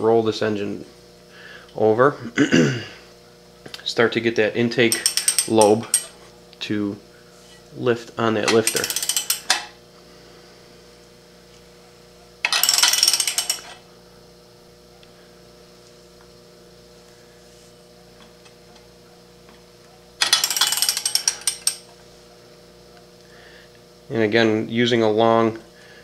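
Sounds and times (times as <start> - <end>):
electrical hum: 0.0 - 26.0
metallic ratchet clicking: 4.9 - 6.1, 8.5 - 9.6, 12.5 - 13.8, 20.2 - 21.8.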